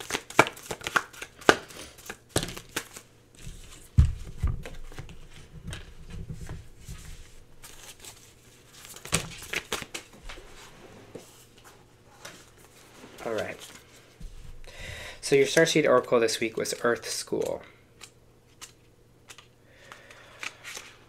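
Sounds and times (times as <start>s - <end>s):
cards flicking and snapping: 0.0s - 3.1s, 8.8s - 10.1s, 15.5s - 21.0s
cards sliding together: 17.4s - 21.0s.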